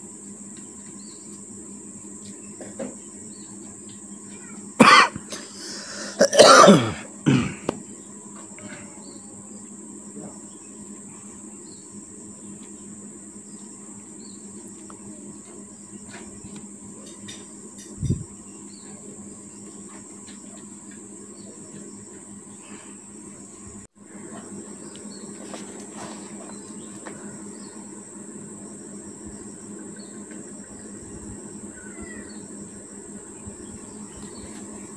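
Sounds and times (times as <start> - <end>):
high insect buzz: 0.0 - 34.9
person coughing: 4.8 - 5.4, 6.1 - 7.7.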